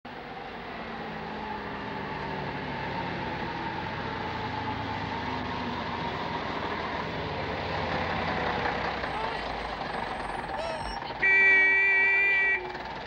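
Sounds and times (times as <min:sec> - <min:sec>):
bus engine approaching: 0:00.1 - 0:13.0.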